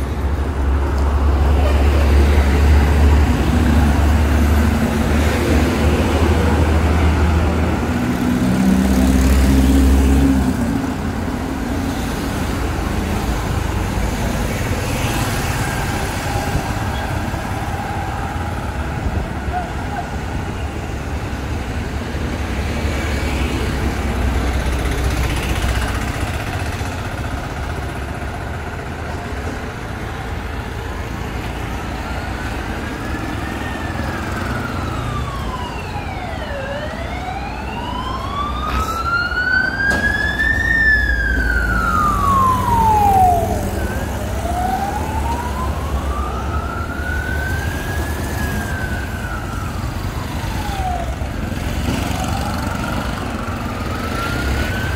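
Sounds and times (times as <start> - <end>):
street traffic rumbling: 0.0 - 54.9
emergency siren wailing: 1.4 - 21.6, 30.8 - 54.9.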